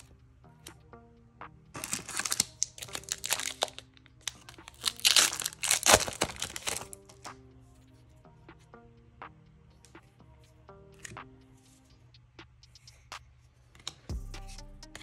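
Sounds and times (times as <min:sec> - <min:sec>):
wrapper crinkling and tearing: 0:01.8 - 0:07.1.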